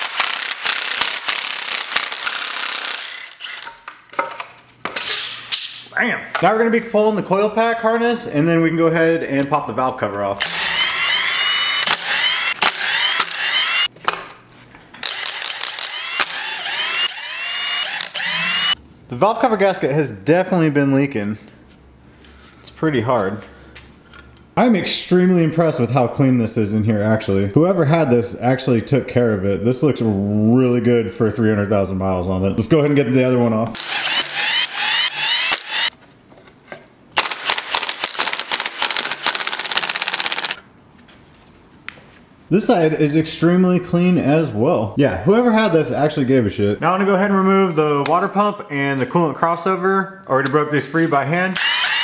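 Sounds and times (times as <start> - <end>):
power tool whirring: 0.0 - 3.8, 10.4 - 13.9, 15.0 - 18.8, 33.8 - 36.0, 37.2 - 40.6, 51.6 - 52.0
cordless drill whining: 0.1 - 3.7, 10.4 - 13.9, 15.0 - 18.8, 33.8 - 36.0, 51.6 - 52.0
rattling clicks of power tool: 10.4 - 13.9, 15.0 - 18.8, 33.8 - 35.9.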